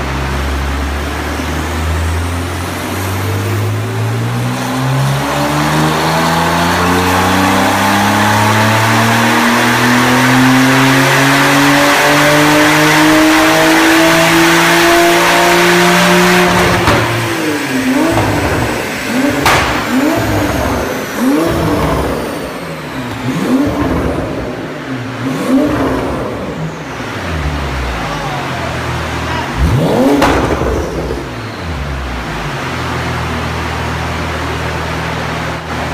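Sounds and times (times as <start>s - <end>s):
car engine revving: 0.0s - 35.9s
high turbo whine: 0.0s - 35.9s
sharp exhaust crack: 16.4s - 24.7s, 29.3s - 31.5s.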